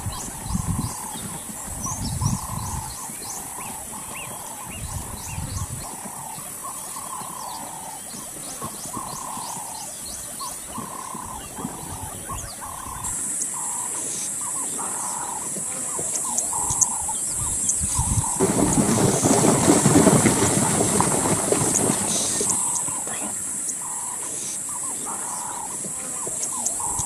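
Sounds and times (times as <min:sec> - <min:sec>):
wind rumble on microphone: 0:00.0 - 0:07.4, 0:15.2 - 0:23.3.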